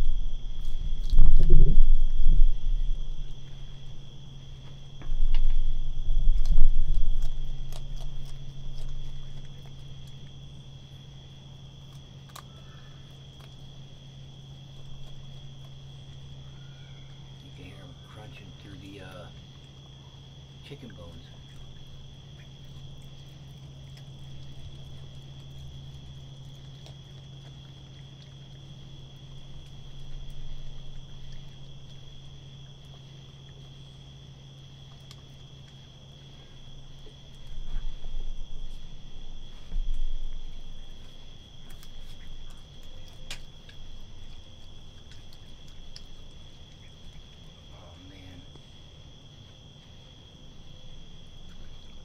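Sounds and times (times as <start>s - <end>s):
dull low thumps: 0.0s - 8.1s
crickets trilling: 0.0s - 52.0s
low hum: 0.0s - 52.0s
raccoon crunching bones: 0.0s - 52.0s.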